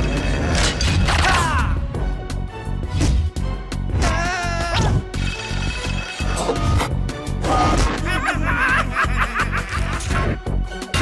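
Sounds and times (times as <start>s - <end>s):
gleeful cackling laughter: 7.9s - 10.4s.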